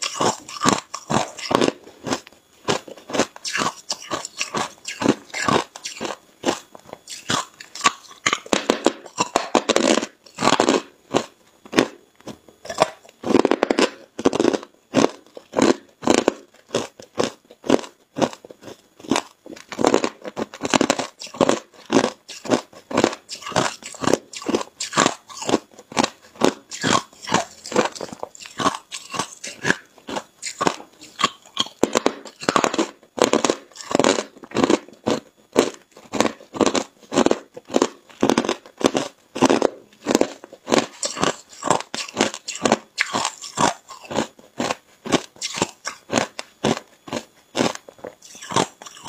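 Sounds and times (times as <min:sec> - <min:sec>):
ice crunching between teeth: 0:00.0 - 0:49.0.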